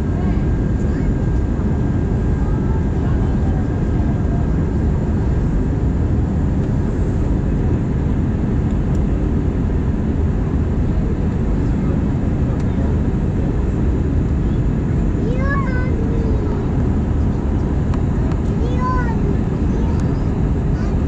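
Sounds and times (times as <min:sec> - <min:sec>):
faint steady whines: 0:00.0 - 0:21.0
jet engines rumbling: 0:00.0 - 0:21.0.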